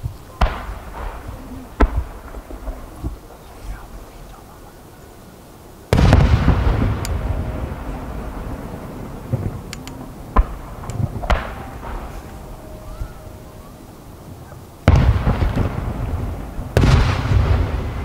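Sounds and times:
heavy firework booms: 0:00.0 - 0:04.1, 0:05.9 - 0:13.2, 0:14.8 - 0:18.0
firework pops: 0:00.4 - 0:03.3
long rumbling echo: 0:05.9 - 0:18.0.

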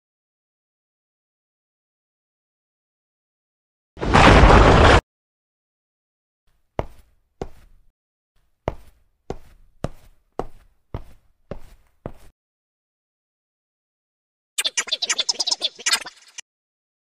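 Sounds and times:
footsteps knocking: 0:06.8 - 0:07.8, 0:08.6 - 0:12.3.

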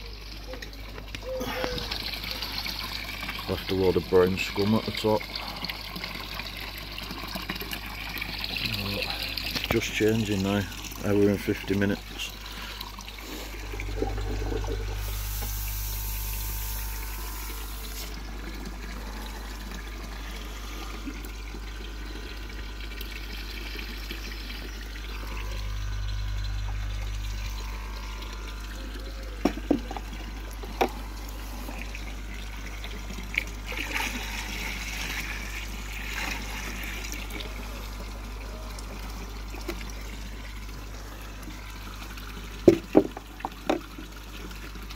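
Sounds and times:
liquid pouring into pond: 0:00.0 - 0:44.9
water trickling and splashing: 0:00.0 - 0:44.9
low hum: 0:08.4 - 0:42.9.

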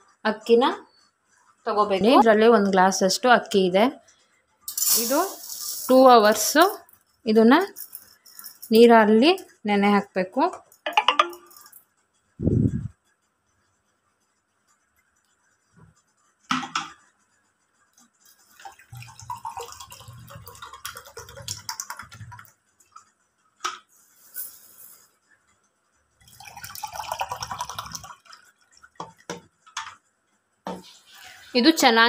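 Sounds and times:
steel vessels clinking: 0:04.7 - 0:06.9, 0:10.7 - 0:11.8
water pouring into steel tumbler: 0:18.3 - 0:22.5, 0:26.2 - 0:29.2.

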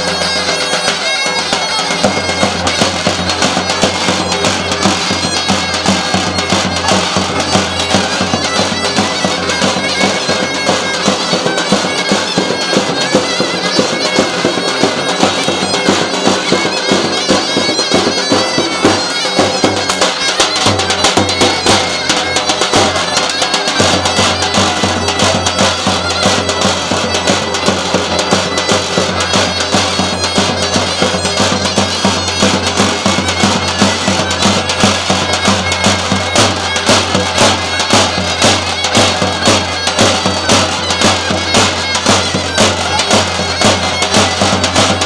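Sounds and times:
drum beat: 0:00.0 - 0:45.0
shrill reed wind instrument: 0:00.0 - 0:45.0.

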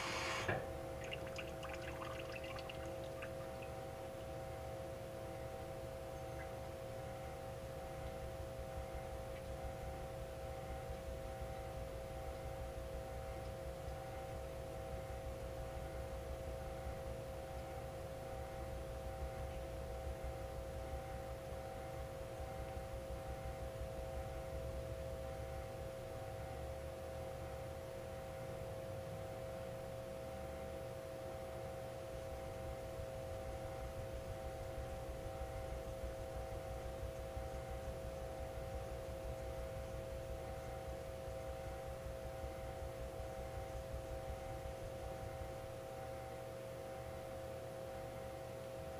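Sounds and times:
machine hum: 0:00.0 - 0:13.5.

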